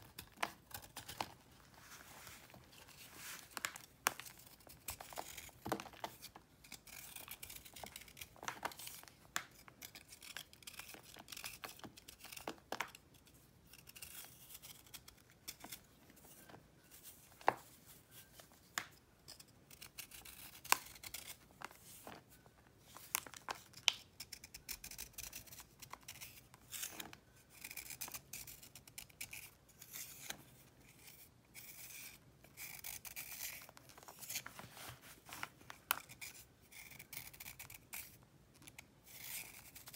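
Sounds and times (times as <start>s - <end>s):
knife scraping pressed powder: 2.2s - 9.0s, 9.6s - 15.8s, 19.2s - 21.4s, 24.2s - 34.4s, 36.0s - 39.9s.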